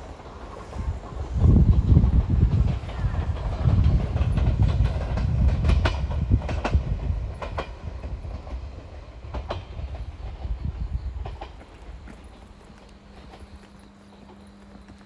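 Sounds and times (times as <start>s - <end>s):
train rumbling on track: 0.0s - 15.0s
wheel clacks over rail joints: 0.0s - 15.0s.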